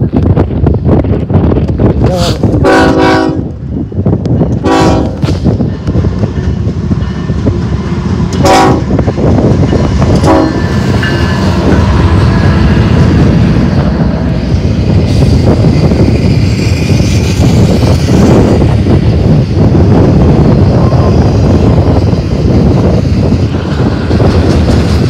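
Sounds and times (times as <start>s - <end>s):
locomotive engine rumble: 0.0s - 25.0s
train horn blasts: 2.6s - 3.5s, 4.6s - 5.4s, 8.3s - 9.0s, 10.2s - 10.7s
train wheels clattering on rails: 3.5s - 25.0s.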